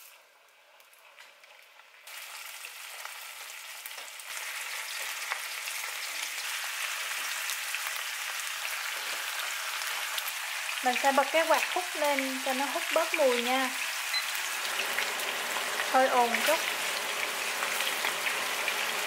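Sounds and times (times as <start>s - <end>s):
fish sizzling in frying oil: 0.0s - 19.0s.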